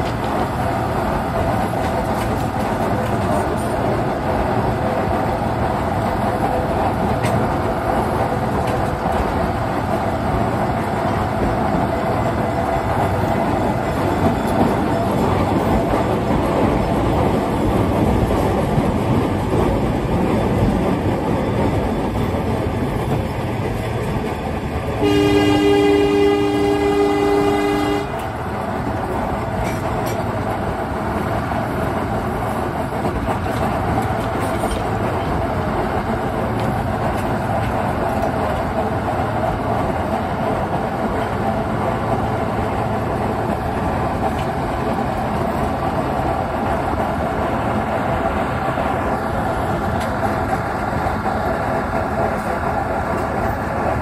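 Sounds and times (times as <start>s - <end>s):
train wheels rumbling and rattling: 0.0s - 54.0s
locomotive horn blast: 25.0s - 28.3s.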